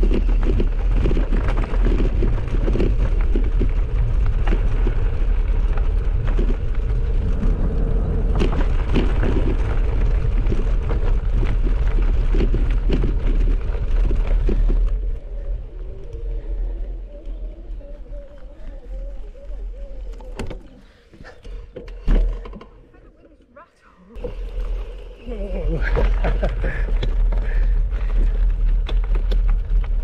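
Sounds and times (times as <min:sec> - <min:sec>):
wind rumble on microphone: 0:00.0 - 0:20.8
bike tyres rattling on gravel: 0:00.0 - 0:22.6, 0:24.2 - 0:30.0.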